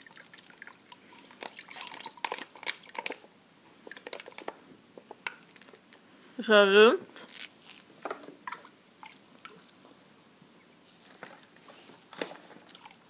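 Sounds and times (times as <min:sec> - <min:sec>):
liquid sloshing in bucket: 0:00.0 - 0:04.5.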